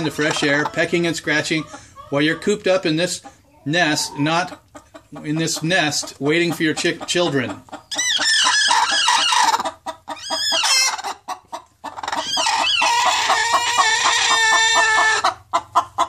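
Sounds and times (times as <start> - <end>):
hens squawking and growling: 0.0 - 16.0.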